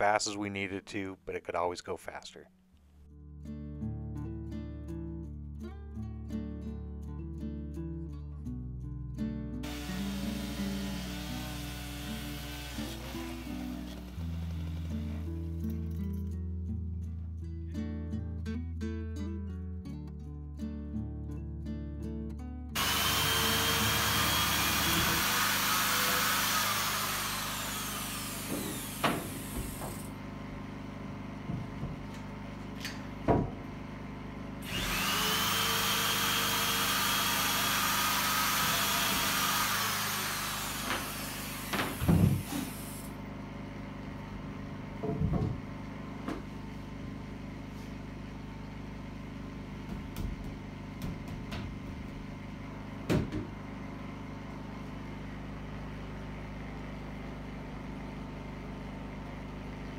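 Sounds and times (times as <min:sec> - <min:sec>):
electric drill boring into wood: 0:09.6 - 0:15.4, 0:22.8 - 0:30.1, 0:34.6 - 0:43.2
knocks of wood and tools: 0:28.4 - 0:30.1, 0:31.4 - 0:33.7, 0:40.8 - 0:42.7, 0:45.0 - 0:46.5, 0:49.8 - 0:52.4, 0:53.0 - 0:53.6.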